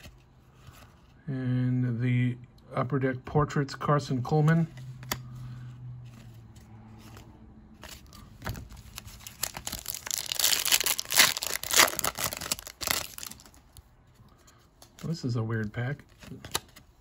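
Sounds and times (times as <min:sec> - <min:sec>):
foil pack tearing and crinkling: 0:08.9 - 0:13.6.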